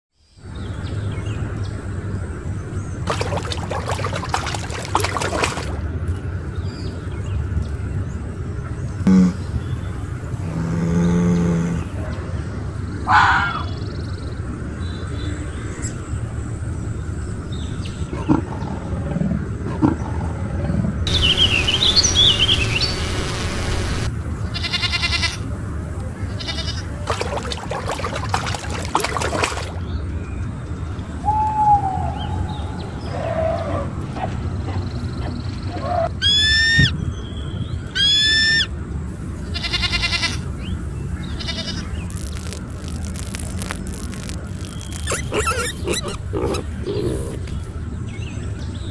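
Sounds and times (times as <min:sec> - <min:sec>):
wild animal calls: 0:09.1 - 0:12.0, 0:41.4 - 0:47.6
steady low rumble: 0:18.7 - 0:24.6
high warbling calls: 0:21.1 - 0:24.1, 0:41.5 - 0:47.5
quick pulsing call: 0:21.1 - 0:24.1.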